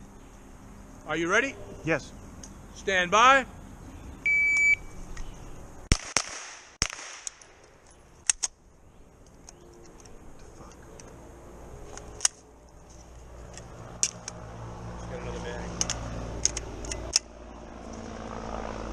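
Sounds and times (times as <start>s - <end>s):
carbine gunshots: 5.9s - 7.4s.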